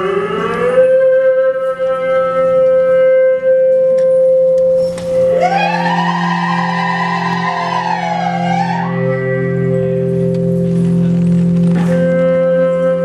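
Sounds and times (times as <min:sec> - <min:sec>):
melody instrument holding long notes: 0:00.0 - 0:13.0
low drone: 0:04.6 - 0:13.0.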